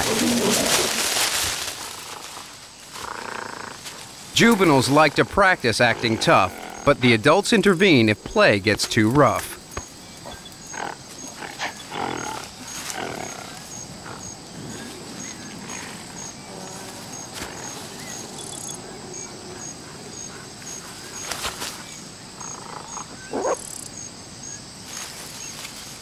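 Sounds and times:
young gorillas play-wrestling: 0.0s - 5.1s
gorilla vocal calls: 22.4s - 23.8s.

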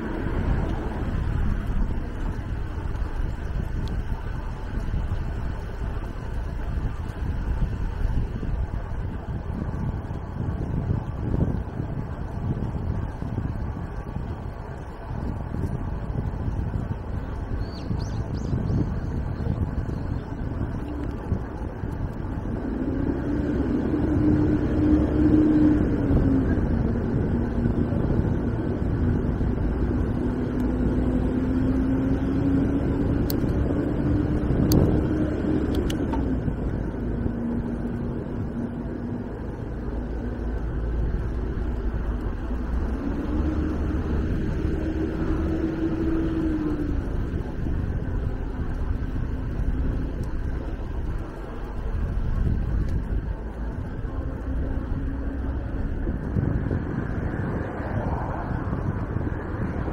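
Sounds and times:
wind on microphone: 0.0s - 59.9s
electric bicycle motor whining: 32.0s - 57.7s.

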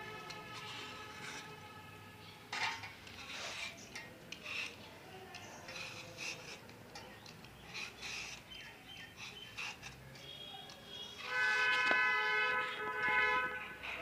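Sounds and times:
peeler scraping apple skin: 2.6s - 12.0s.

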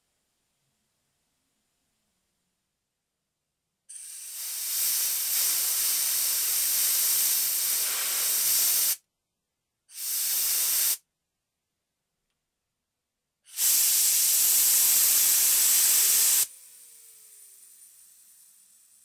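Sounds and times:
compressed air hissing: 3.9s - 9.0s, 9.9s - 11.0s, 13.5s - 19.0s.

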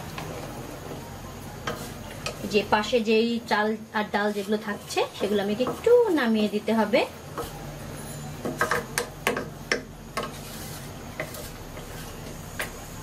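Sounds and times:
wooden spatula scraping metal pot: 4.0s - 6.5s, 7.3s - 12.8s.

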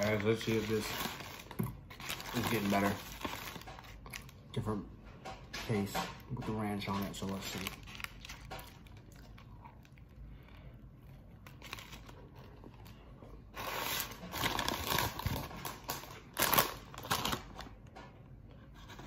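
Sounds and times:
paper packaging rustling: 0.0s - 4.8s, 6.8s - 9.0s, 11.4s - 17.8s
chewing sandwich: 7.8s - 13.4s.

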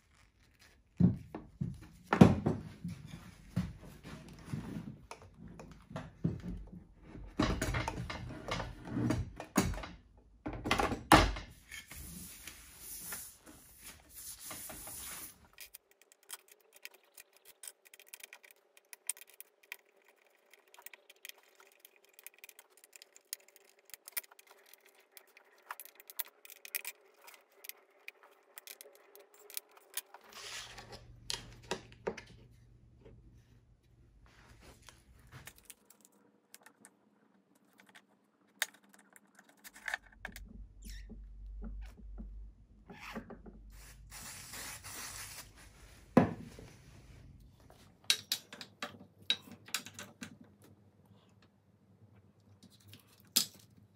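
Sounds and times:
metal parts clicking and scraping: 15.4s - 30.8s.

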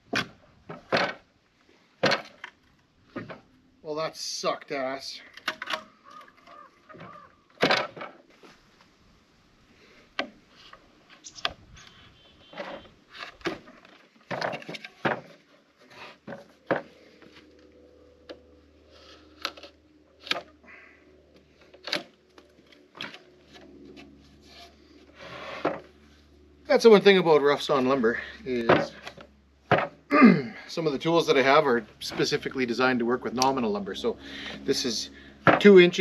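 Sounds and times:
wooden board knocking and scraping: 12.4s - 15.4s, 28.7s - 30.0s.

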